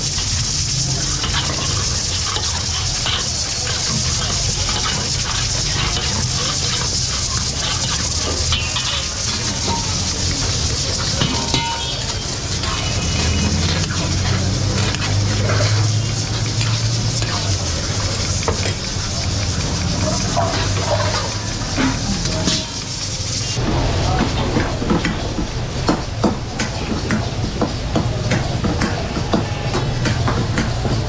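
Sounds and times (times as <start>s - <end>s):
meat sizzling in oil: 0.0s - 23.6s
metal spatula scraping a pan: 0.0s - 23.6s.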